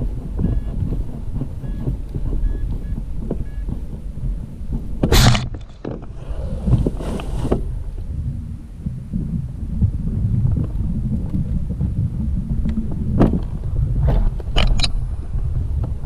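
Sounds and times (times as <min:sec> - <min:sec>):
wind buffeting microphone: 0:00.0 - 0:16.0
sharp hiss: 0:06.1 - 0:07.8.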